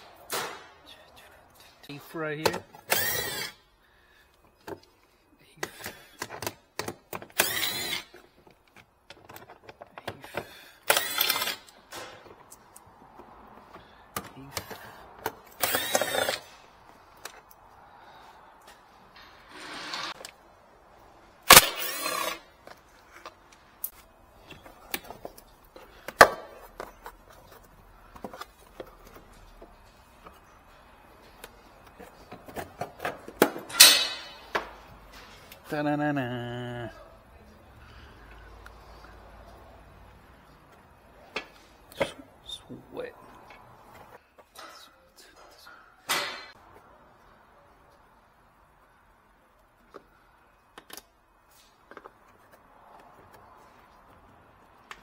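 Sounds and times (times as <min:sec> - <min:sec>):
impact driver running: 0:02.9 - 0:03.6, 0:10.8 - 0:11.7, 0:15.6 - 0:16.5.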